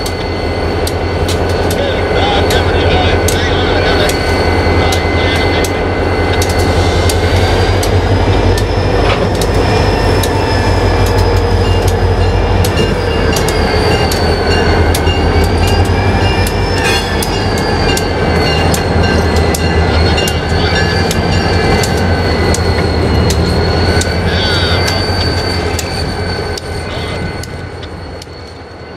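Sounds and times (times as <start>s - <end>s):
wheels clicking on rails: 0.0s - 28.8s
diesel locomotive engines droning: 0.0s - 28.9s
wheel squeal: 6.1s - 28.9s.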